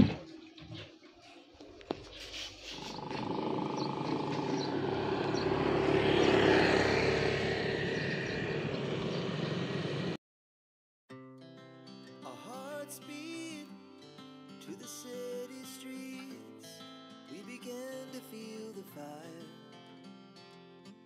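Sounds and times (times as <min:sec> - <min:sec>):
vehicle engine passing: 0:02.2 - 0:10.2.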